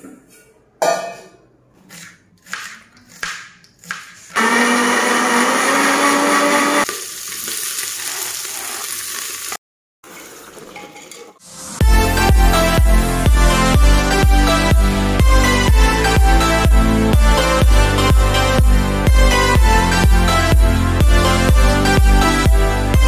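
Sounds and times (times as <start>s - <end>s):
kitchen noise: 0.0s - 4.4s, 10.1s - 11.5s
electric mixer grinder running: 4.4s - 6.9s.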